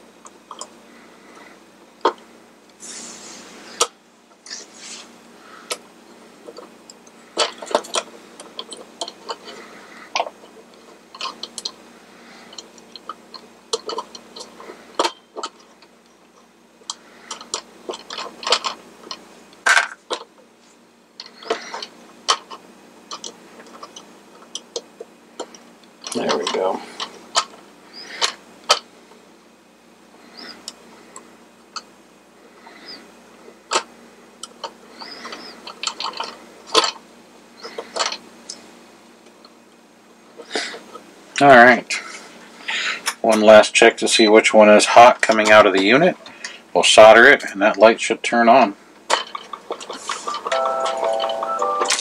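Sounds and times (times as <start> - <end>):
small parts clicking and tapping: 0.2 - 0.8, 6.4 - 11.8, 12.5 - 20.4, 21.2 - 27.6, 28.2 - 28.9, 33.7 - 37.0, 37.6 - 38.6, 49.0 - 52.0
brief scrapes: 2.8 - 3.6.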